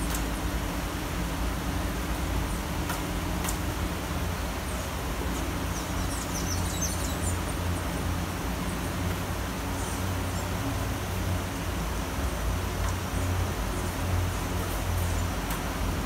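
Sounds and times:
steady rain falling: 0.0s - 16.0s
bird chirping: 4.7s - 7.6s.

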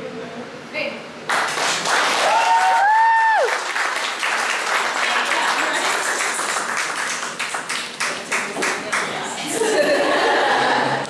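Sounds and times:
audience clapping: 1.3s - 9.2s
person cheering: 2.2s - 3.6s.

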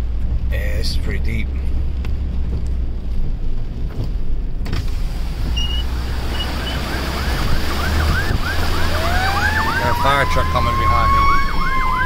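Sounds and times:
vehicle engine: 0.0s - 12.0s
floodwater rushing and splashing: 4.7s - 12.0s
fire truck siren wailing: 5.8s - 12.0s.

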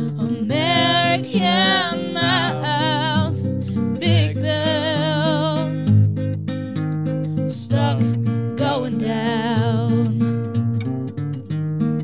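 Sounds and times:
person singing wordless melody: 0.0s - 6.0s, 7.5s - 10.2s
acoustic guitar accompaniment: 0.0s - 12.0s.

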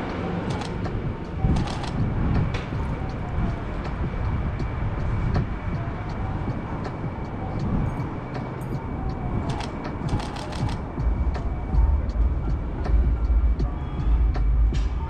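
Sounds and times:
city traffic rumble: 0.0s - 15.0s
sharp clicks: 0.5s - 2.0s, 9.5s - 10.8s.

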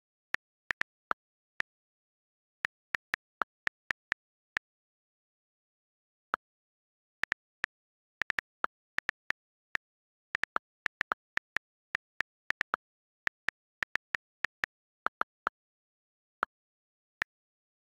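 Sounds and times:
phone keyboard key clicks: 7.3s - 15.5s.

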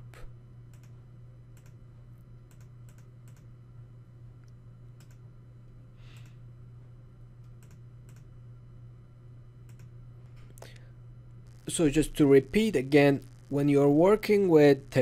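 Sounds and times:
low electrical hum: 0.0s - 15.0s
computer mouse clicks: 0.7s - 1.8s, 2.5s - 3.5s, 4.4s - 5.2s, 7.4s - 8.3s, 9.6s - 10.0s.

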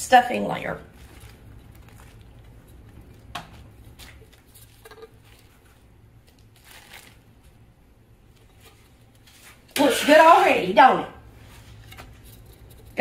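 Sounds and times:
plastic liner rustling and crinkling: 0.9s - 7.6s.

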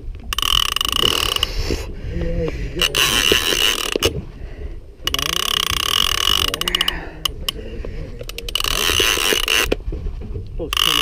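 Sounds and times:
fishing reel gears whirring and clicking: 0.3s - 1.9s, 2.8s - 4.2s, 5.0s - 7.6s, 8.2s - 9.8s, 10.7s - 11.0s.

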